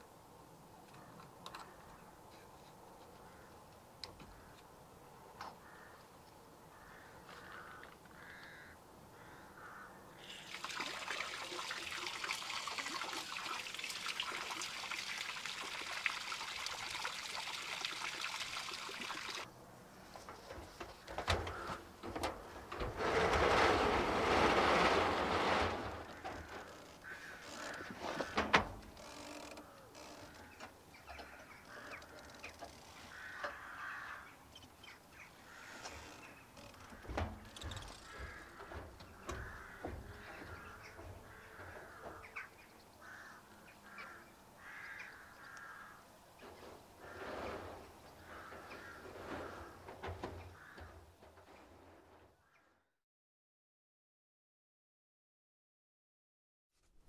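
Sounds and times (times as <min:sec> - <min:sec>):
water hissing from garden hose: 0:10.2 - 0:19.5
hose knocking and clattering: 0:20.2 - 0:30.4, 0:36.6 - 0:42.4, 0:46.4 - 0:51.8.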